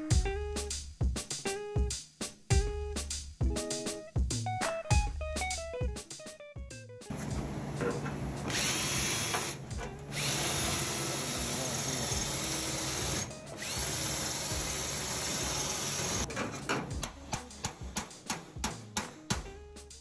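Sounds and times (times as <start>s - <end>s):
cordless drill boring metal: 8.5s - 16.3s.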